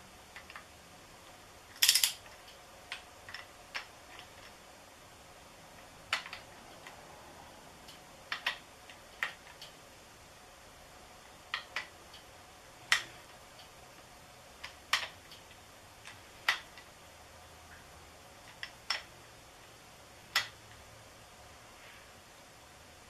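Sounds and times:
ratchet clicking: 1.7 - 2.4.

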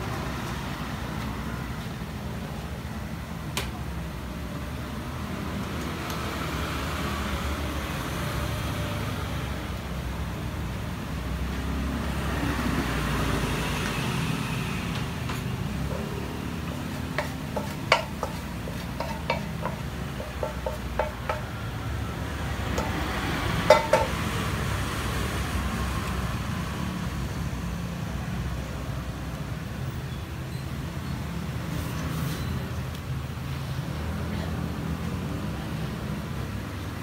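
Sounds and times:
spatula clinking on a pan: 17.2 - 21.5, 23.7 - 24.2.

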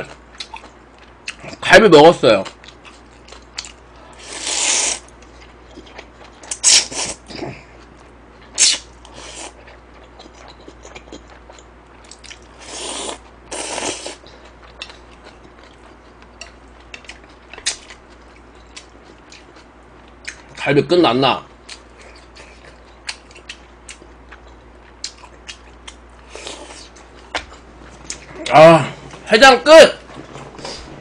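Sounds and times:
chewing: 0.3 - 1.6, 2.4 - 4.1, 5.0 - 13.2, 13.8 - 20.6, 21.7 - 28.5
person slurping noodles: 4.2 - 5.0, 12.6 - 14.2.

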